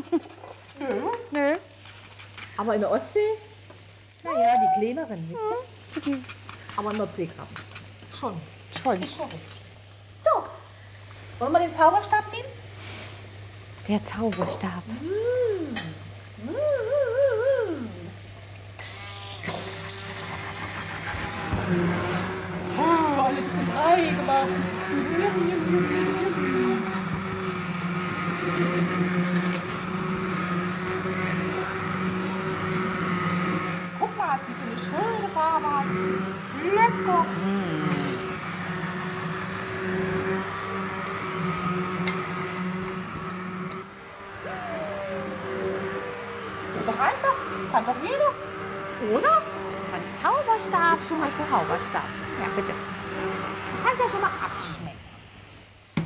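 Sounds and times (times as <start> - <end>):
wavering oooh tone: 4.3 - 5.0, 15.0 - 18.2, 44.3 - 46.8
immersion blender running: 14.9 - 55.3.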